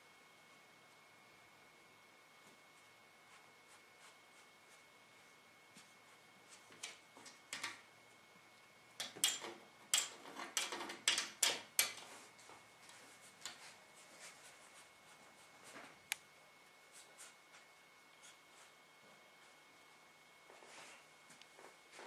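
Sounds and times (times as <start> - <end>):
faint high whine: 0.0 - 10.1.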